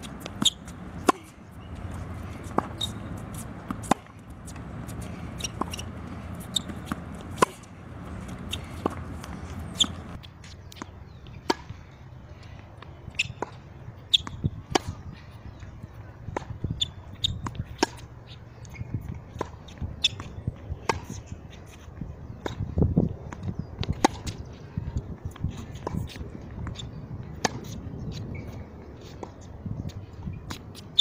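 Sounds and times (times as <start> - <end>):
racket striking tennis ball: 0.0 - 10.2
tennis ball bouncing: 0.0 - 11.7, 25.7 - 28.3.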